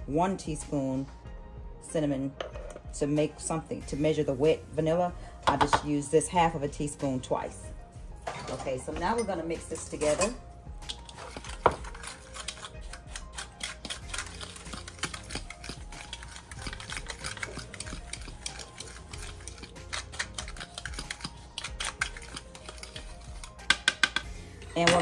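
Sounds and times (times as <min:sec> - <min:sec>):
utensil scraping glass bowl: 0:11.0 - 0:23.7.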